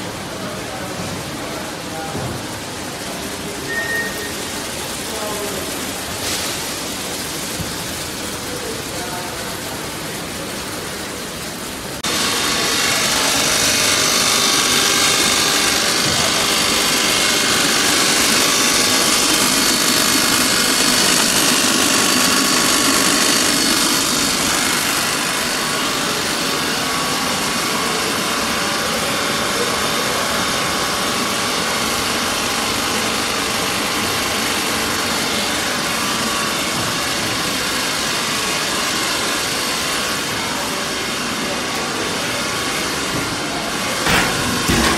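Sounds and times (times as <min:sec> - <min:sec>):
machinery whirring: 0:00.2 - 0:44.9
motors humming: 0:02.5 - 0:29.0.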